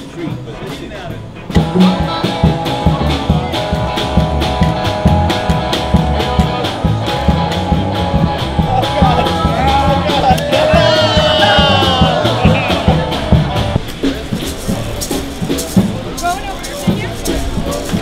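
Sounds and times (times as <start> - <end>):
plucked double bass: 0.2 - 18.0
held melody line: 1.6 - 13.9.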